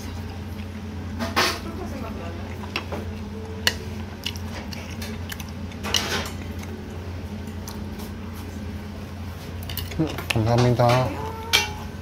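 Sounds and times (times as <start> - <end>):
low room hum: 0.0 - 12.0
person chewing food: 2.4 - 8.6
tableware clicking: 9.6 - 11.8.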